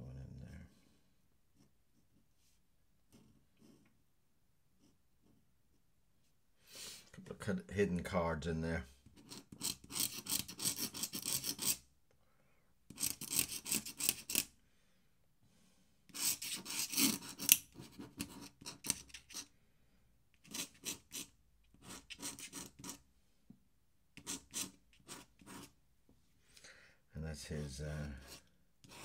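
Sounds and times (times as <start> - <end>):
pen scratching on paper: 3.1 - 4.0, 4.8 - 5.4, 9.1 - 11.8, 12.9 - 14.5, 16.1 - 19.5, 20.4 - 23.0, 24.2 - 25.8, 28.2 - 29.0.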